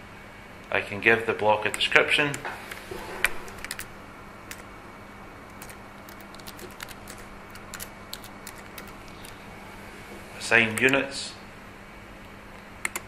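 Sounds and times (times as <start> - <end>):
keyboard typing clicks: 3.5 - 3.9, 4.5 - 4.7, 5.5 - 9.4.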